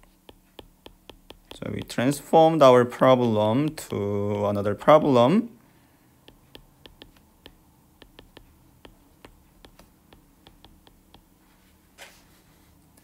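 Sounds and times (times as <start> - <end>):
stylus tapping glass screen: 0.0 - 2.1, 6.2 - 11.3.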